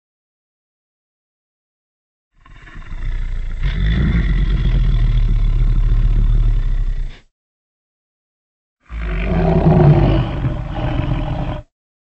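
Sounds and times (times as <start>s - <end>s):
deep dinosaur roar: 2.4s - 7.2s, 8.8s - 11.7s.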